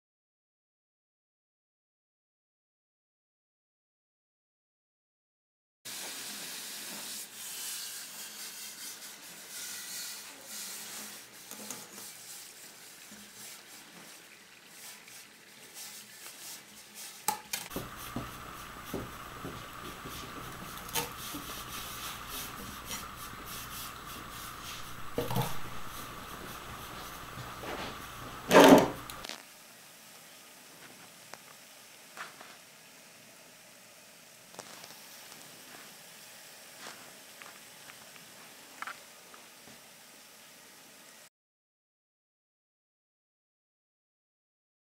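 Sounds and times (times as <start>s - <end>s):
liquid nitrogen hissing: 5.9s - 41.3s.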